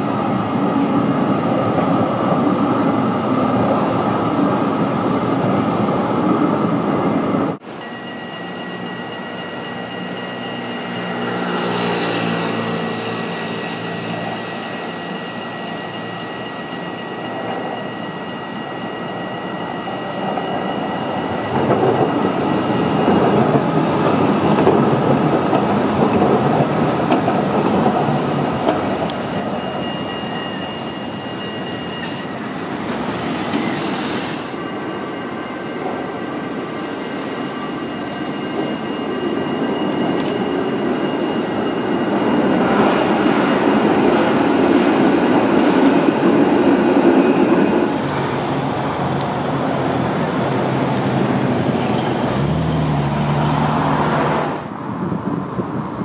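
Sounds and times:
tram wheel-and-rail rumble: 0.0s - 56.0s
high-pitched ring: 7.6s - 26.1s, 28.2s - 52.8s.

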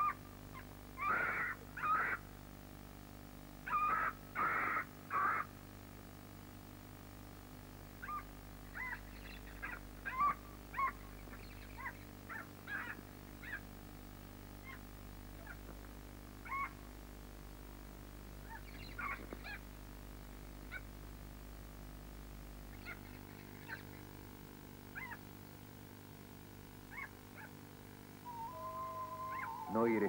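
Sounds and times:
harsh caw-like animal cries: 0.0s - 0.2s, 1.0s - 2.2s, 3.7s - 5.5s, 8.0s - 13.6s, 16.4s - 16.8s, 18.5s - 19.6s, 22.7s - 23.9s, 24.9s - 25.3s, 26.9s - 27.6s, 28.2s - 30.0s
low steady hum: 0.0s - 30.0s.

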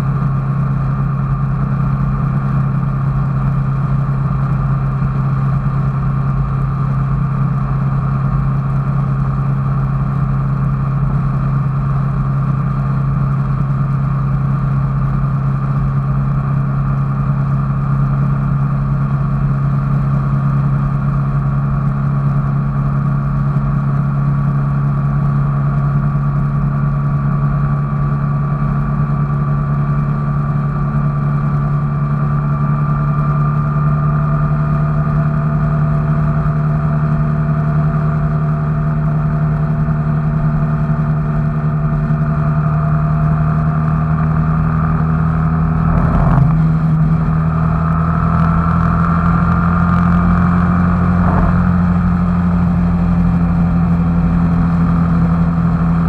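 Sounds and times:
faint steady whine: 0.0s - 56.0s
vehicle engine running: 0.0s - 56.0s.

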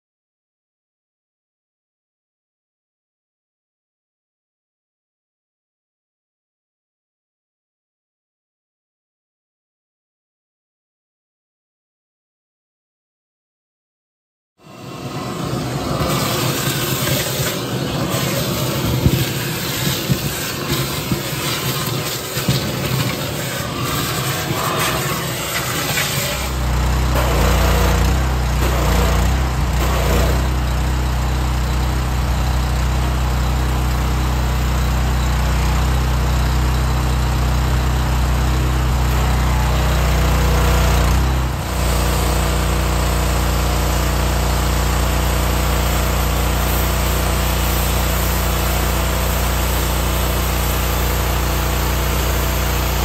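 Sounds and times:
pressure washer engine running: 14.6s - 53.0s
water spray hissing: 16.1s - 27.9s.

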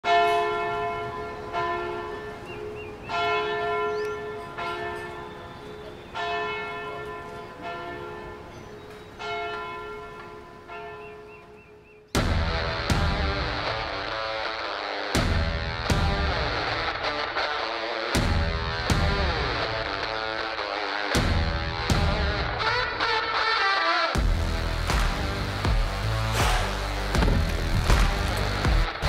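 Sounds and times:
church bell tolling: 0.0s - 11.6s
small birds chirping: 2.1s - 12.2s.

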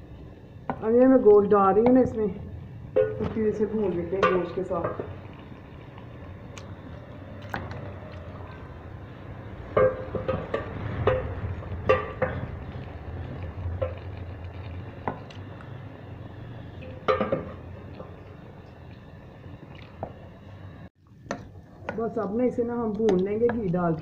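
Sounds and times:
low rumble of simmering stew: 0.0s - 24.0s.

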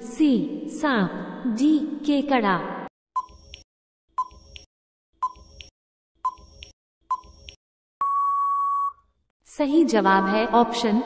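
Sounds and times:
long steady beep: 8.0s - 9.0s.

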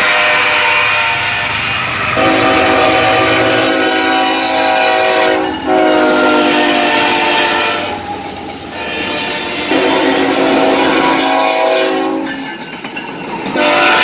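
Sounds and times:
locomotive air horns: 0.0s - 8.1s, 8.7s - 12.5s, 13.6s - 14.0s.

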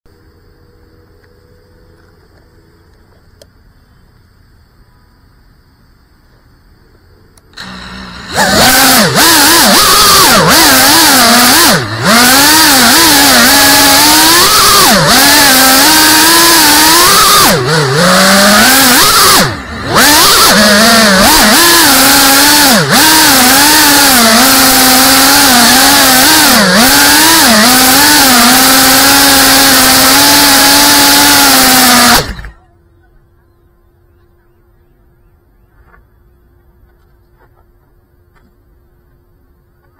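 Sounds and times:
drone motors buzzing whine: 0.1s - 39.9s.

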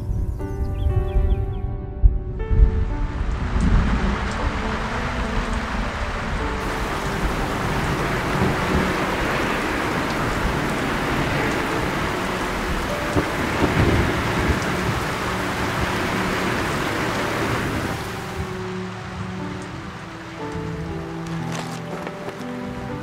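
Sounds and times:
thunder rumbling: 2.1s - 21.5s
heavy rain pouring: 2.9s - 23.0s.

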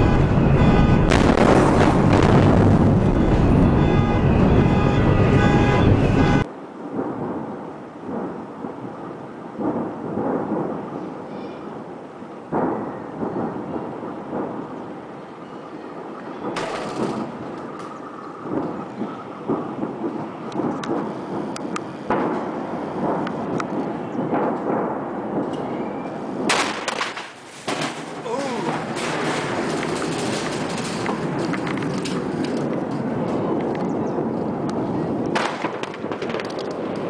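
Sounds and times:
sudden blasts: 0.0s - 15.2s, 16.3s - 37.0s
deep rolling explosion rumble: 0.0s - 27.0s, 27.6s - 37.0s
crackling pops: 16.0s - 37.0s.

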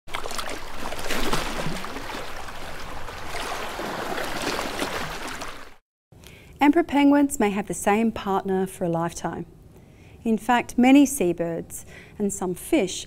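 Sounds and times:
low bubbling glides: 0.1s - 5.8s
rushing water: 0.1s - 5.8s.

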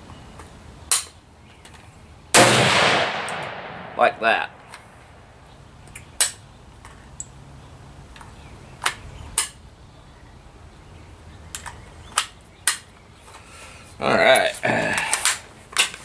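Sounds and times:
rifle gunshots: 2.3s - 4.6s.

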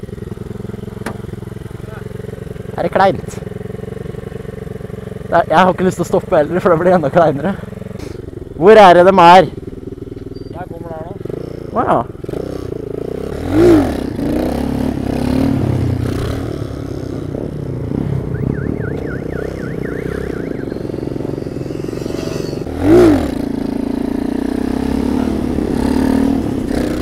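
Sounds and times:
small motorbike engine revving: 10.1s - 27.0s.

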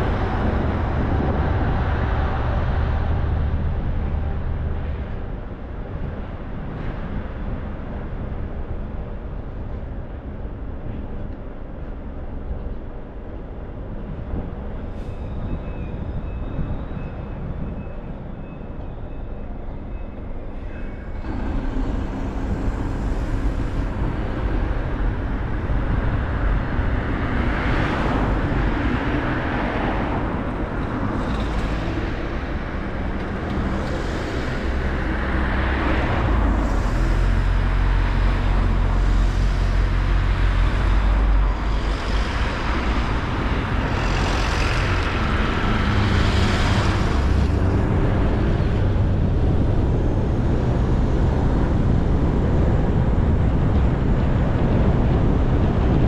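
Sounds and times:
deep rumble: 0.0s - 18.4s, 20.4s - 56.0s
road and tyre noise: 0.0s - 56.0s
car engine: 29.9s - 50.3s.

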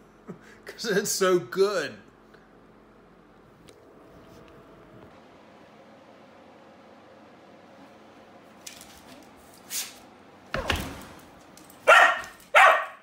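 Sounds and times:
dog barking: 11.8s - 13.0s.

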